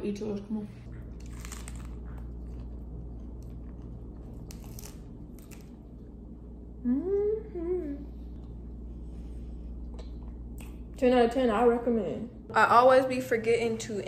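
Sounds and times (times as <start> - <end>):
crunching bites of lettuce: 1.2 - 5.9
person humming mmm: 6.7 - 8.3.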